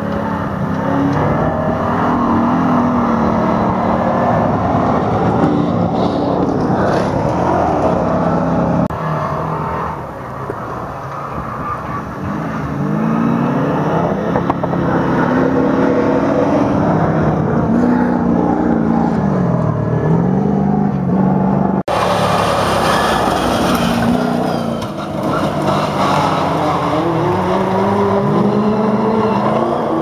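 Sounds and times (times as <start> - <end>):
rally truck engines racing: 0.0 - 30.0
truck revving hard: 11.8 - 30.0.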